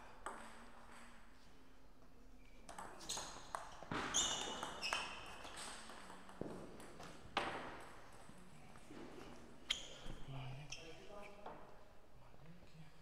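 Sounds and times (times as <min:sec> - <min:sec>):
shoes squeaking on floor: 0:02.9 - 0:06.5, 0:09.0 - 0:11.4.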